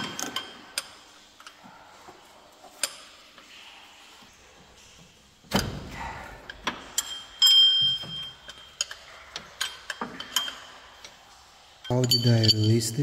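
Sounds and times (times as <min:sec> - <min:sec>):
loud ringing metal clink: 0:07.0 - 0:08.9, 0:11.8 - 0:13.0.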